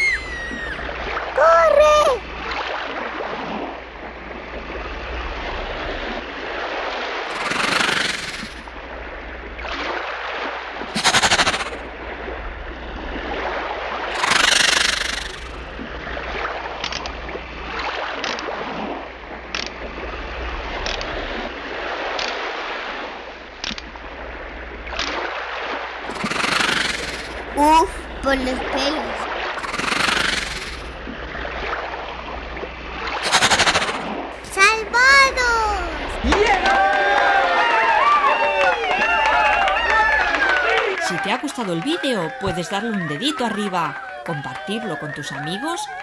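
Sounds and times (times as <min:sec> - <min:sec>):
water sloshing and splashing: 0:00.0 - 0:07.4, 0:08.6 - 0:14.2, 0:15.6 - 0:26.3, 0:30.8 - 0:36.5
loud splashes: 0:13.0 - 0:38.4.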